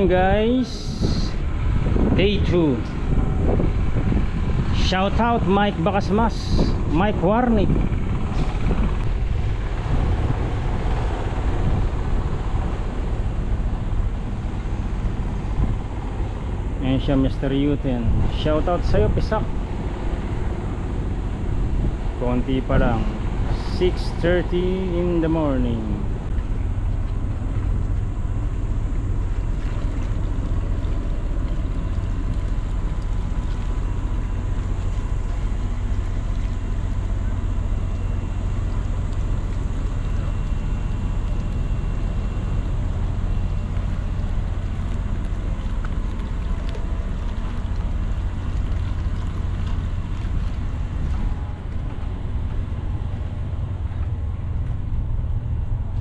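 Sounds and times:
wind on microphone: 0.0s - 16.7s, 17.8s - 24.8s.

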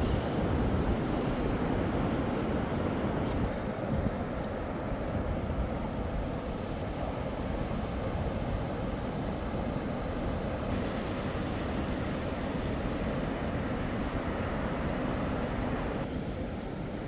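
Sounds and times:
wind buffeting microphone: 0.0s - 17.0s
surf breaking on beach: 10.7s - 17.0s.

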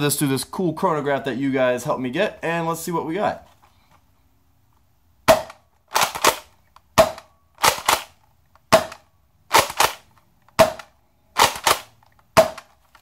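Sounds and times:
toy blaster firing snaps: 7.1s - 8.2s, 8.8s - 12.7s.

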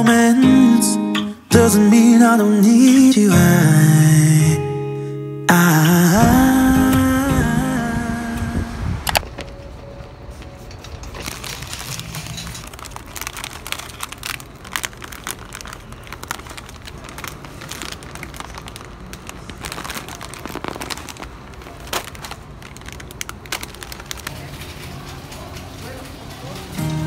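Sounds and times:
plastic bags crinkling: 10.7s - 27.0s.

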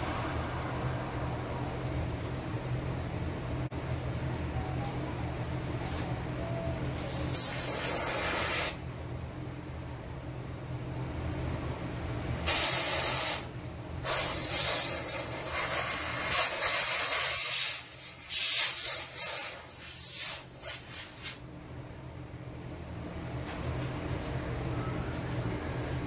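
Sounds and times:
steady low hum: 0.0s - 12.5s, 19.5s - 26.0s
hissing air blasts: 6.9s - 8.9s, 12.4s - 21.4s.

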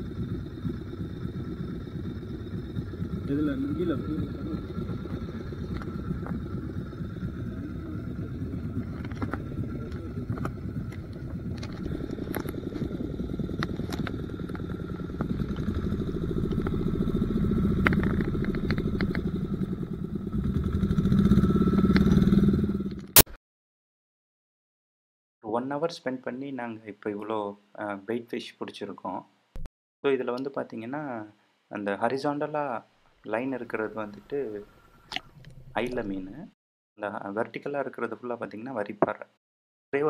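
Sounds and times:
boat engine running: 0.0s - 23.2s.

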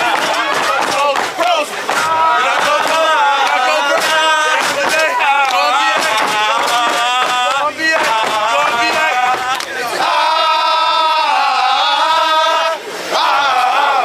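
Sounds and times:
stomps and claps: 0.0s - 9.8s
men chanting in unison: 0.0s - 14.0s.

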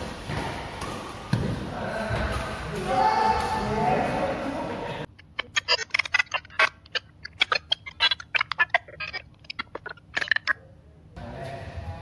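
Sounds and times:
digital glitch clicks and chirps: 5.2s - 10.6s.

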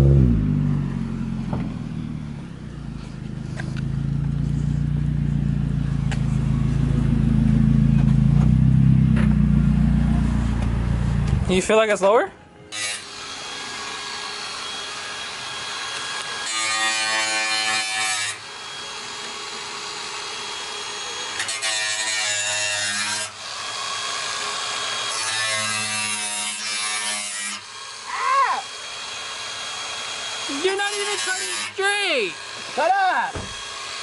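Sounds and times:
angle grinder cutting sheet metal: 12.7s - 34.0s.

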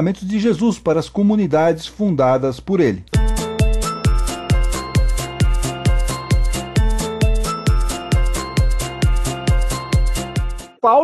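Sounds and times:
electronic music: 3.2s - 10.8s.

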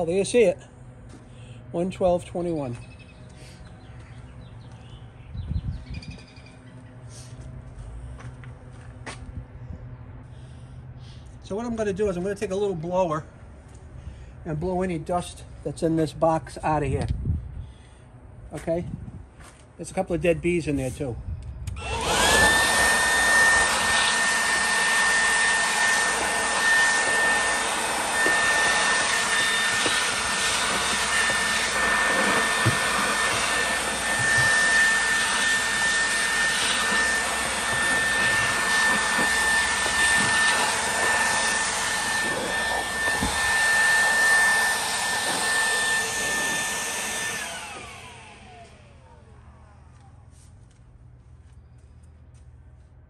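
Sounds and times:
electric blower whining: 21.6s - 50.0s.

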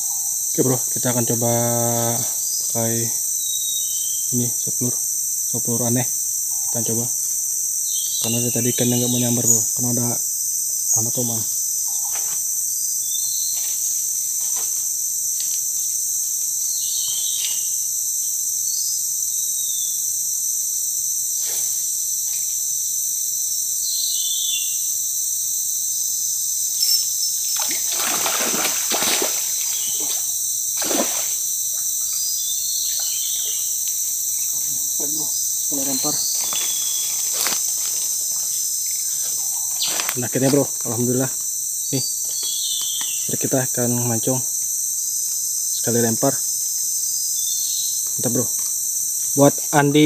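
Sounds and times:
high-pitched insects chirring: 0.0s - 50.0s
fish splashing in water: 27.6s - 29.8s, 30.8s - 31.4s.

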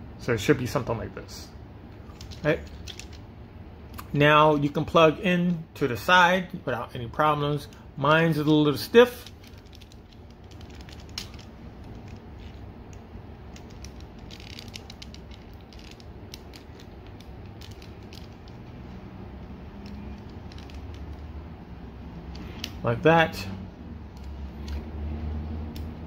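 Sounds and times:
plastic figure parts clicking: 2.0s - 3.2s, 9.1s - 21.4s.

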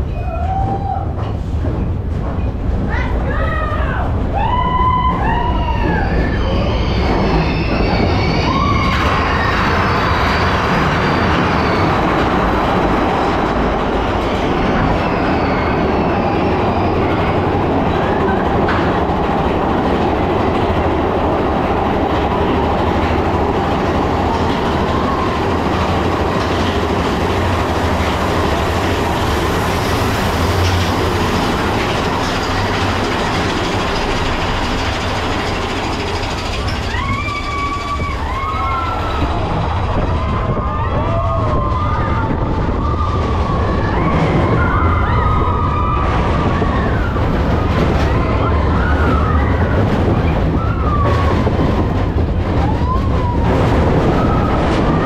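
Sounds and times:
roller coaster rumbling on track: 0.0s - 55.0s
riders yelling and whooping: 3.0s - 13.2s, 36.6s - 51.8s.

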